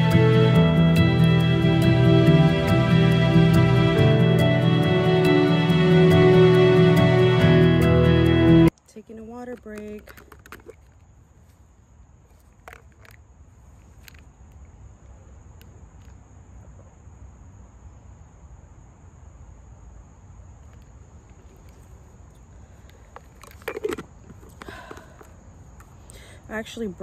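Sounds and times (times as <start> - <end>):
insects droning: 0.0 - 27.0.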